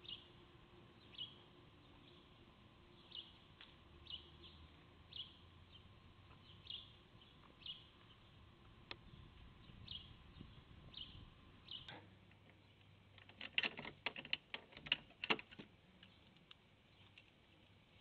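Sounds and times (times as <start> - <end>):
bird chirping: 0.0 - 13.1
keys and padlock rattling: 13.2 - 15.6.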